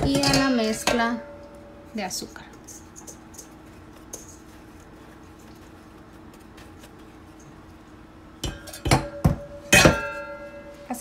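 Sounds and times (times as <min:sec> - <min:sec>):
metal bowl and pan clanking: 0:00.0 - 0:01.7, 0:08.4 - 0:10.8
faint scratching of sugar: 0:02.6 - 0:07.7.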